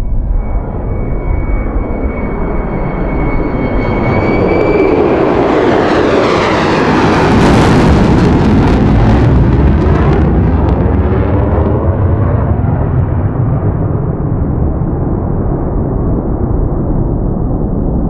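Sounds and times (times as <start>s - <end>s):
high jet whine: 0.0s - 15.5s
jet engine noise: 0.0s - 18.0s.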